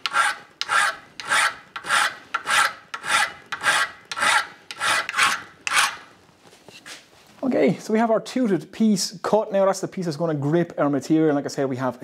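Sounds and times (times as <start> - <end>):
hand file strokes on metal: 0.0 - 6.1.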